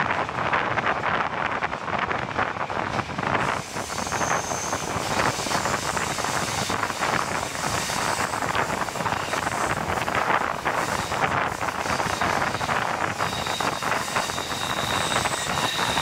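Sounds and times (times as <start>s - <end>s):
train wheels rumbling on rails: 0.0s - 16.0s
wind buffeting microphone: 0.0s - 16.0s
high-pitched squeal: 3.4s - 16.0s.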